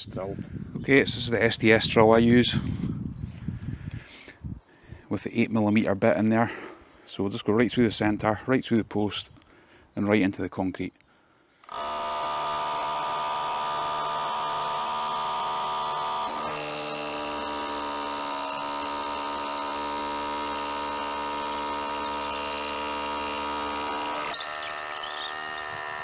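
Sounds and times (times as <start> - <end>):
cordless drill boring: 11.6 - 26.0.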